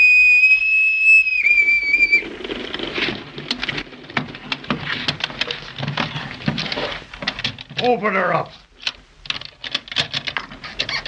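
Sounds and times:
boatswain's pipe whistle: 0.0s - 2.2s.

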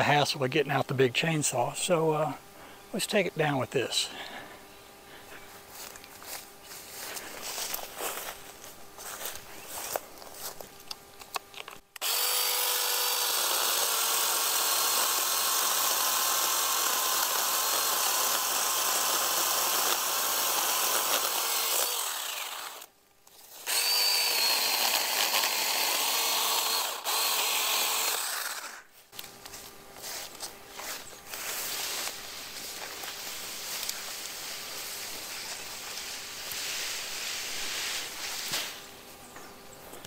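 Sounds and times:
chainsaw cutting wood: 12.0s - 28.9s.

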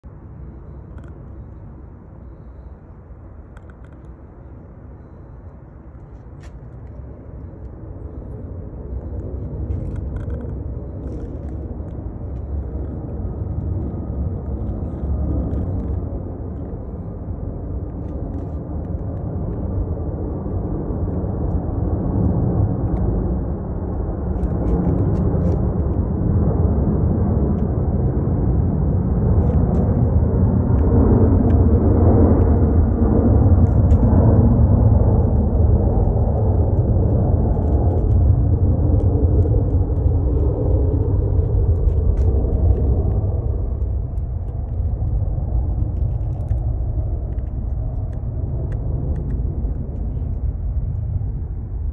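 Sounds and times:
low rumbling noise: 0.0s - 51.9s.

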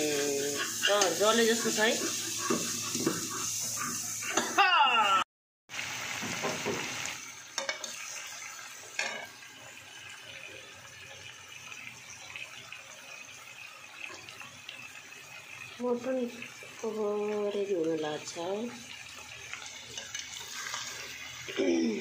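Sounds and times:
meat sizzling in a metal pan: 0.0s - 22.0s
metal spatula scraping pan: 0.2s - 4.5s.

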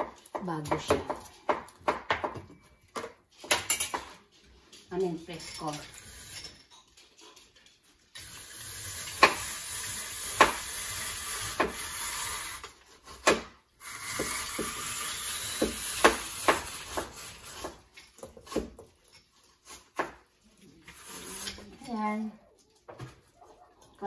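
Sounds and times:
grater scraping rasp: 8.2s - 13.2s, 13.8s - 17.9s.

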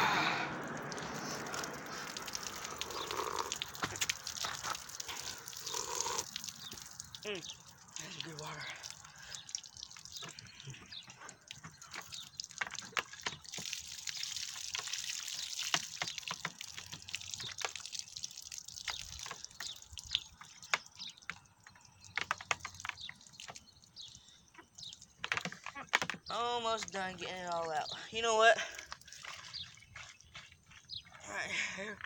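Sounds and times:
water pouring and dripping: 0.0s - 32.0s.

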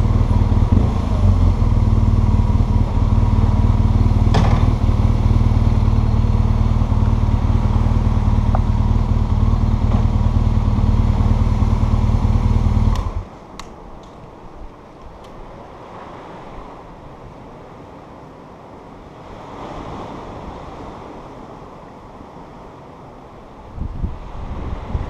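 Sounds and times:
motorcycle engine idling: 0.0s - 13.4s
faint wind: 0.0s - 25.0s.

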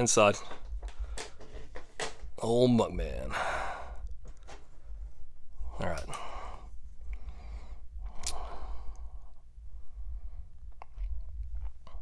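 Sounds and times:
steady low hum: 0.0s - 12.0s
person breathing out: 6.1s - 9.4s.

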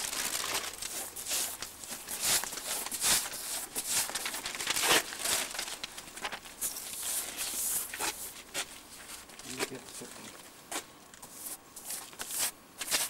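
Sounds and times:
paper crinkling: 0.0s - 10.5s, 11.2s - 13.0s
paste brush scraping wall: 0.9s - 4.2s, 11.3s - 13.0s.

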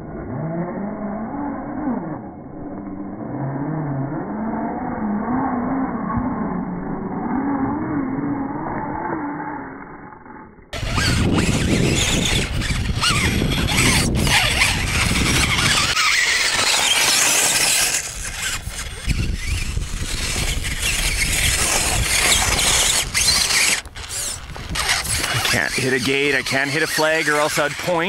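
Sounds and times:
low rumble: 0.0s - 16.5s
rc car motor whining: 10.3s - 28.0s.

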